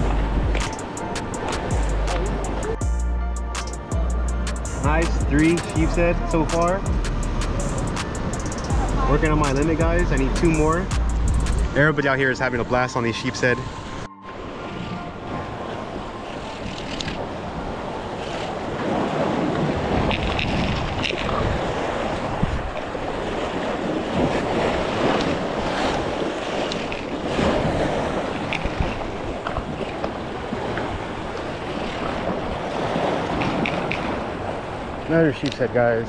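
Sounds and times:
wind buffeting microphone: 4.0s - 36.0s
surf washing against rocks: 14.4s - 36.0s.

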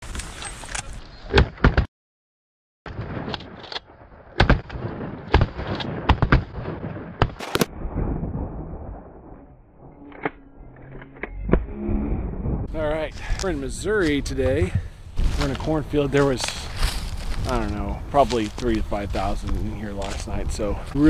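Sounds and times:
shotgun blasts: 2.9s - 8.6s.

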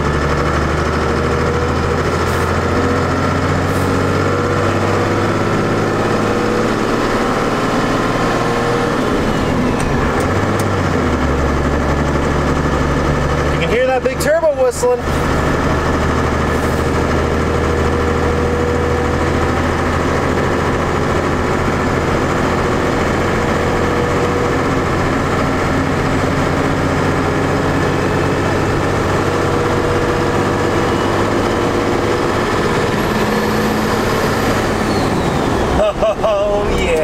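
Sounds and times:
diesel engine running: 0.0s - 37.0s
turbo whistling: 32.8s - 35.8s.

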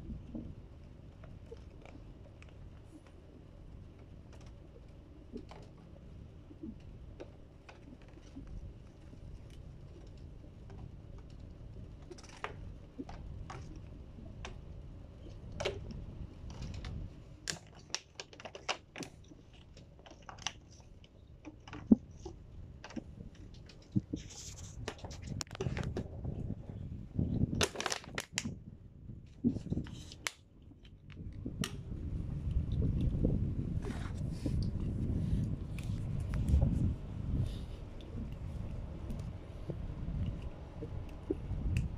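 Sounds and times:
sharp clicks and plastic crackles: 15.5s - 26.0s, 27.5s - 28.6s.

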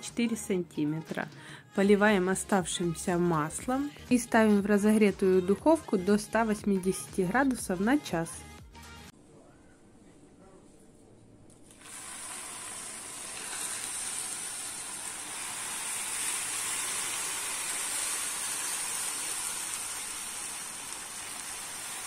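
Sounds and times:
syrup hissing on hot pastry: 11.7s - 22.0s.

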